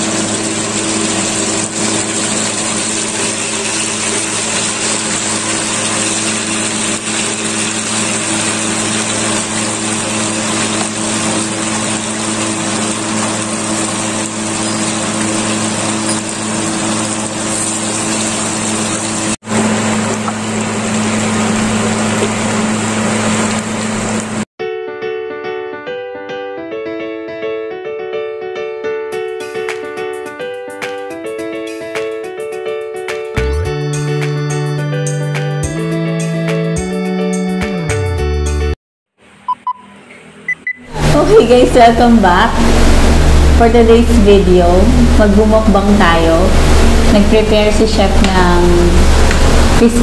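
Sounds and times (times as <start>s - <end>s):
meat deep-frying in hot oil: 0.0s - 24.4s, 41.0s - 50.0s
low hum: 40.4s - 50.0s.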